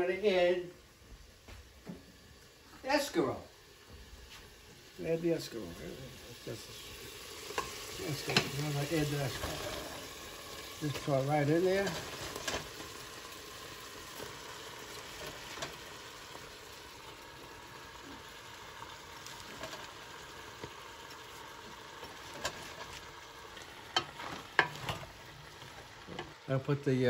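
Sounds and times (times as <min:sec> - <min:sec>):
sauce sizzling in a pot: 0:00.0 - 0:27.0
leaves dropped into pot: 0:11.8 - 0:12.9
wooden spoon stirring: 0:22.0 - 0:26.4.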